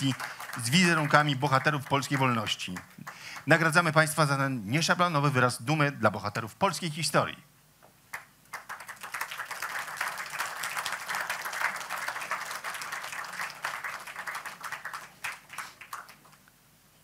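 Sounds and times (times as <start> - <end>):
audience applauding: 0.0 - 3.8, 8.1 - 16.4.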